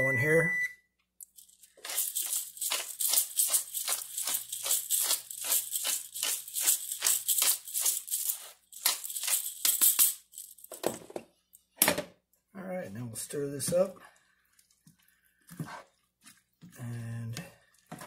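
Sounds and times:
seasoning shaker rattling: 1.2 - 10.7.

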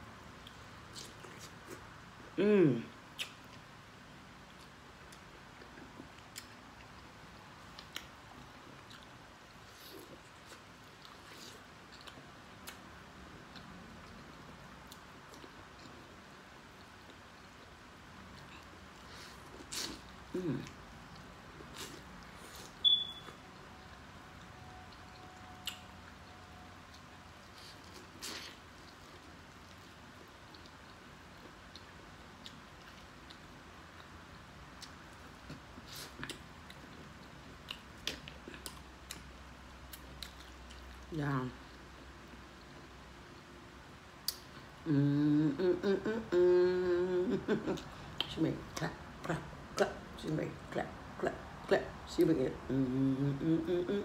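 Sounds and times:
chewing corn: 4.4 - 12.8, 13.4 - 41.1.

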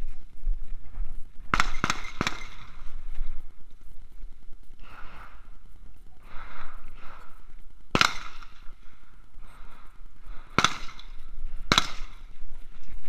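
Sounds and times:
gunshots echoing: 1.5 - 3.0, 7.9 - 9.0, 9.6 - 12.4.

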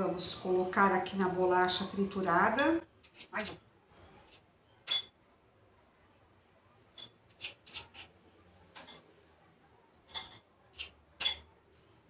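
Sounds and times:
metal spoon clinking on a plate: 4.3 - 5.2, 6.9 - 9.1, 10.0 - 11.6.

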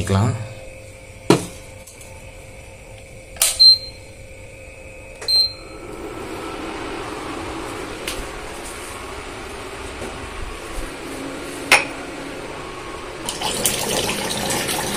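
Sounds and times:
cooling fan whirring: 0.0 - 14.9.

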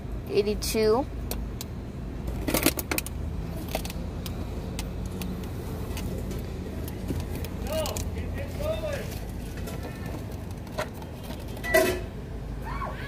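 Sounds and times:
low car hum: 0.0 - 13.0.

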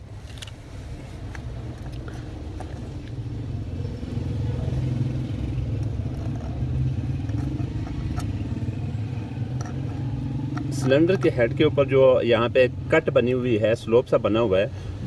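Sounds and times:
vehicle engine running: 0.4 - 13.5.

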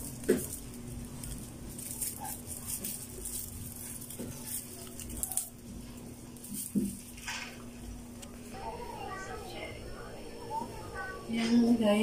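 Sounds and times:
leaves rustling and snapping: 0.0 - 8.4.

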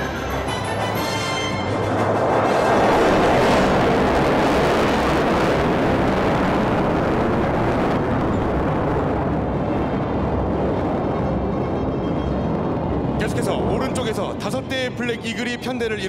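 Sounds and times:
jet engine roar overhead: 0.0 - 16.0.

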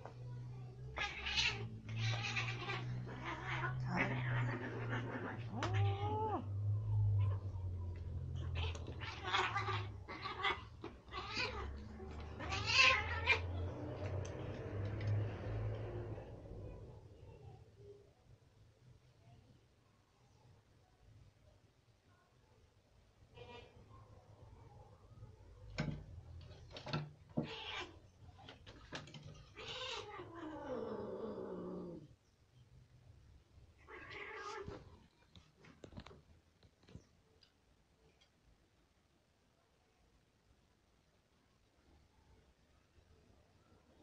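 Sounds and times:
cats squabbling with harsh cries: 0.9 - 14.3, 27.3 - 28.2, 29.4 - 32.0, 33.8 - 35.0.

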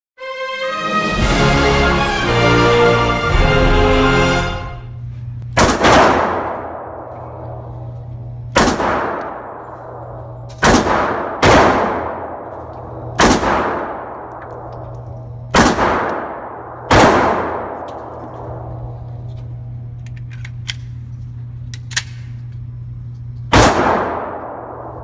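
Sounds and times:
steady low hum: 1.2 - 25.0
pistol shots echoing: 5.5 - 7.6, 8.5 - 14.9, 15.5 - 18.6, 23.5 - 25.0.

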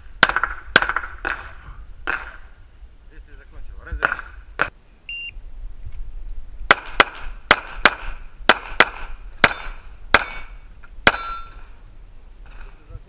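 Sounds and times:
shot timer beep: 5.1 - 5.4
handgun shots: 6.7 - 10.5.

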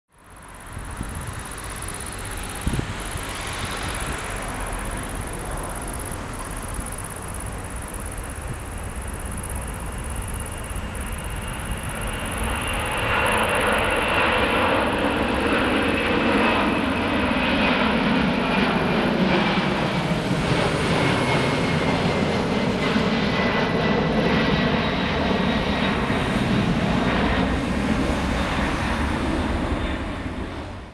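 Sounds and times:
high fan whine: 0.1 - 30.9
jet engines at takeoff power: 0.1 - 30.9.

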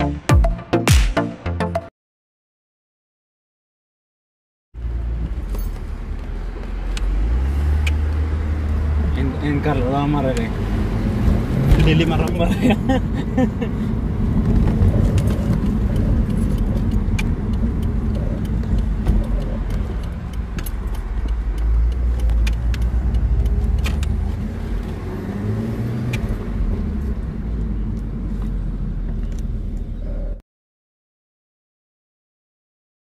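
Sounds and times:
car engine rumble: 4.8 - 30.4
road noise: 4.8 - 30.4.

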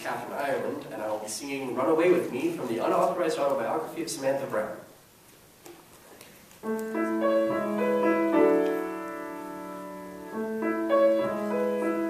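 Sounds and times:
piano playing: 6.6 - 12.0.

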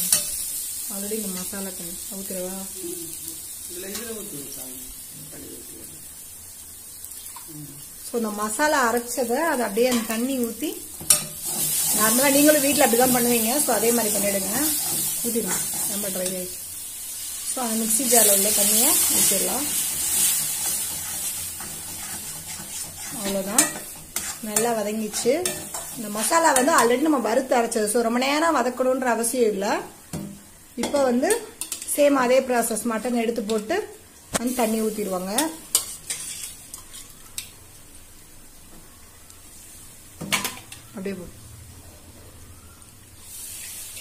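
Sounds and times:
frying sizzle: 0.0 - 44.0
metal spatula scraping a pan: 11.0 - 16.5, 18.0 - 27.0, 35.4 - 37.2.

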